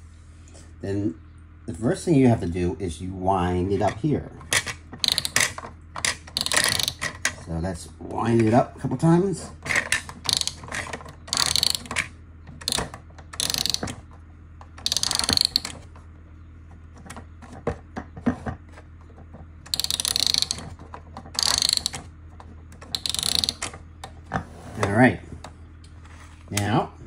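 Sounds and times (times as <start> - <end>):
clockwork ratchet clicking: 5.0 - 7.1, 9.7 - 14.0, 14.8 - 15.8, 19.7 - 20.7, 21.4 - 22.1, 22.9 - 23.7.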